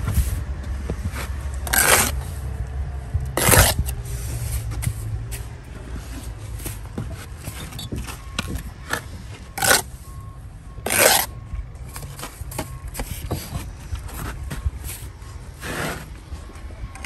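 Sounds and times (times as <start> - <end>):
trowel scraping mortar: 1.2 - 2.5, 3.4 - 7.9, 8.9 - 10.0, 10.9 - 11.4, 15.0 - 16.1.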